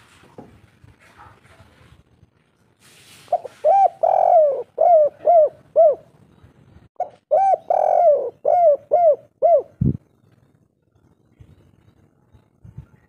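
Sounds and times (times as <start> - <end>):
dove cooing: 3.3 - 6.1, 7.0 - 10.0.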